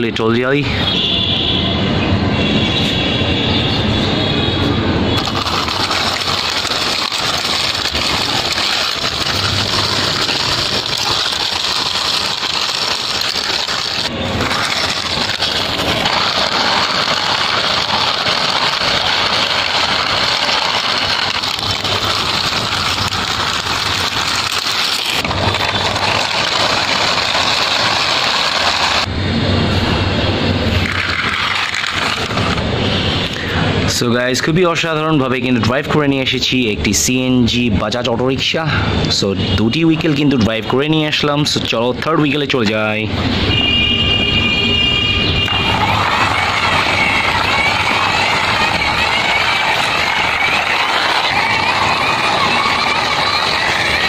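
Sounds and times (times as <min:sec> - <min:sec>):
toy wheels grinding on concrete: 0:05.1 - 0:29.1, 0:30.6 - 0:33.5, 0:45.3 - 0:54.0.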